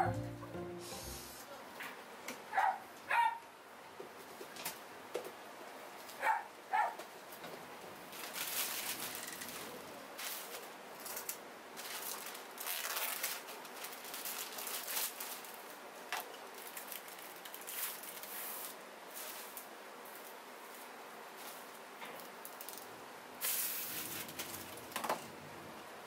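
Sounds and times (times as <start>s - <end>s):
plastic bags crinkling: 8.1s - 19.6s.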